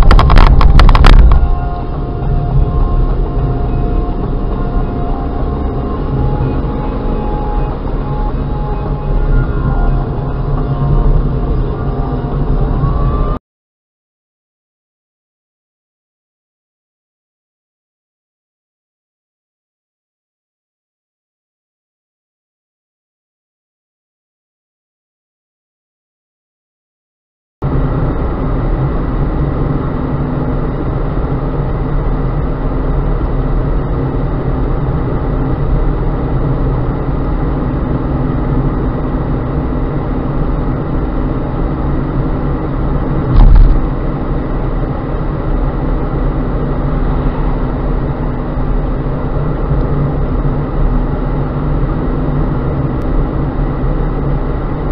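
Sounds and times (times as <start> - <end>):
loud thump: 0.0 - 1.6, 43.3 - 43.9
car engine and tyre noise: 0.0 - 13.4, 27.6 - 54.9.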